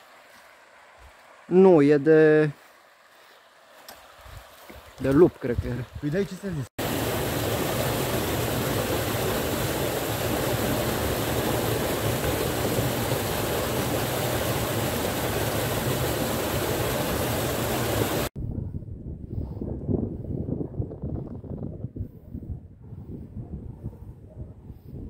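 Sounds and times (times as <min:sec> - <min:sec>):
waterfall splashing into pool: 0:06.8 - 0:18.3
faint wind noise: 0:18.0 - 0:25.0.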